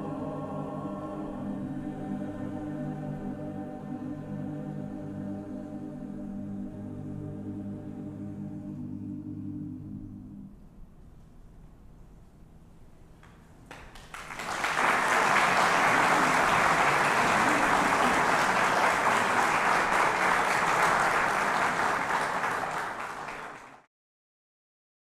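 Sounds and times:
audience applauding: 13.7s - 23.9s.

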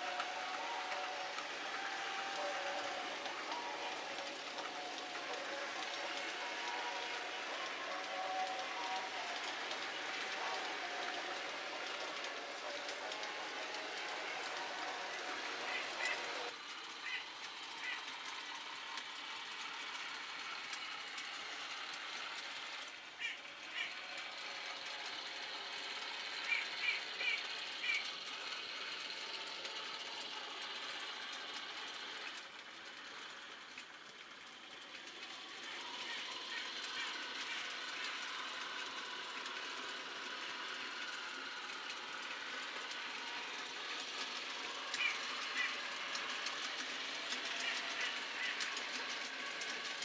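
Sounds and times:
model train whirring: 0.0s - 50.0s.

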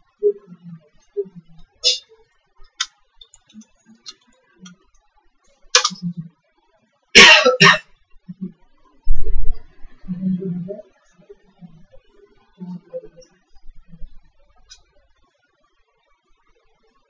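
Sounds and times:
keyboard typing and mouse clicks: 2.7s - 4.9s, 5.8s - 6.0s.

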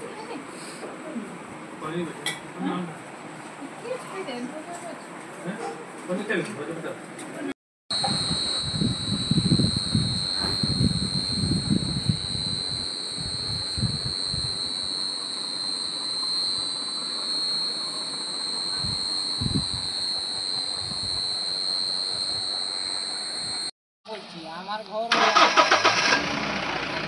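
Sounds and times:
insects chirring: 7.9s - 23.7s.

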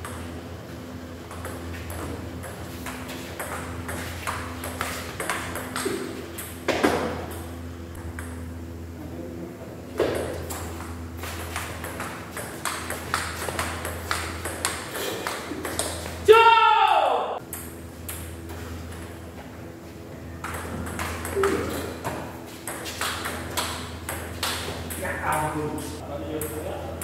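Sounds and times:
table tennis ball hits: 1.3s - 8.5s, 10.0s - 16.2s, 20.4s - 25.5s.

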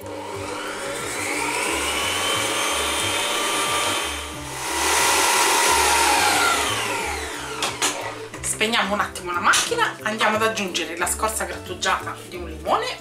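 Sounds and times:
stand mixer motor whine: 0.0s - 8.4s.

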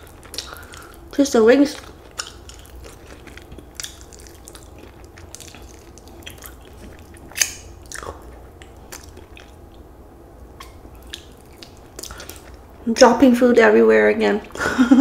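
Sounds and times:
person chewing food: 0.0s - 1.2s, 1.8s - 12.7s
lip smacks: 2.1s - 9.8s, 10.6s - 12.6s.

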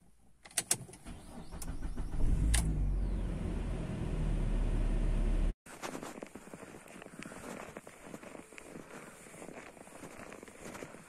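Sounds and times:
car engine rumble: 0.9s - 5.6s
footsteps crunching on snow: 5.7s - 11.0s.

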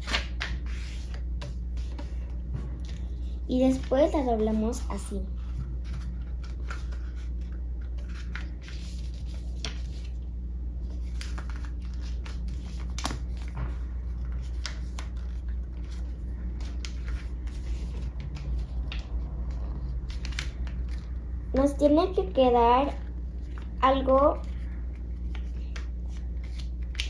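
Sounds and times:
paper rustling: 0.0s - 10.2s, 10.9s - 21.2s, 24.3s - 27.0s
low hum: 0.2s - 21.6s.

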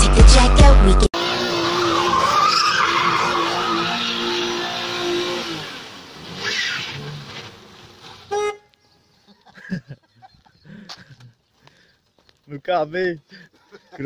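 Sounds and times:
car engine at high revs: 0.0s - 8.3s
tyres squealing on asphalt: 1.2s - 8.8s.

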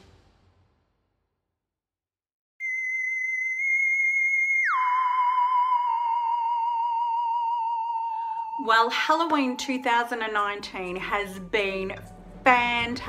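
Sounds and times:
wavering theremin-like tone: 2.6s - 11.3s.

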